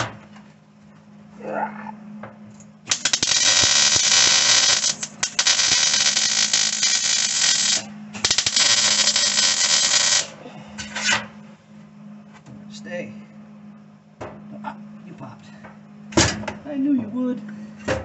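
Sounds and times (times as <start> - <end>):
welder low hum: 0.0 - 17.9
welding arc crackling: 2.8 - 10.4.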